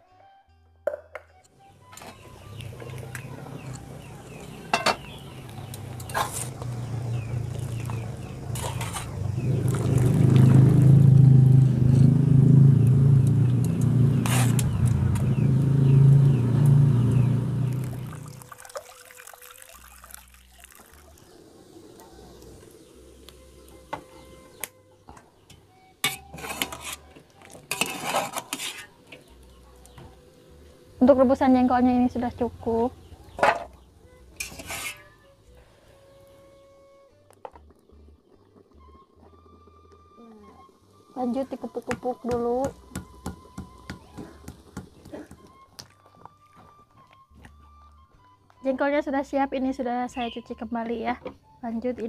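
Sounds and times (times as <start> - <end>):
metal cookware clinking: 4.7 - 5.2
loud low rumble: 9.2 - 18.2.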